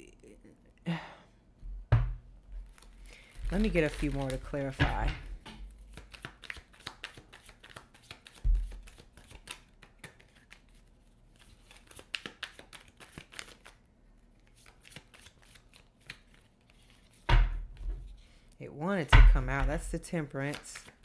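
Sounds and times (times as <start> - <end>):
thump: 1.9 - 2.2
cards being shuffled: 2.6 - 5.1, 5.7 - 13.8, 14.4 - 17.3, 20.3 - 21.0.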